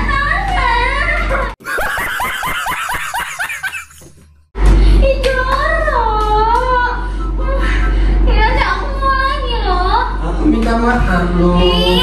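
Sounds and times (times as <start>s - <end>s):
rapid laughter: 1.6s - 4.2s.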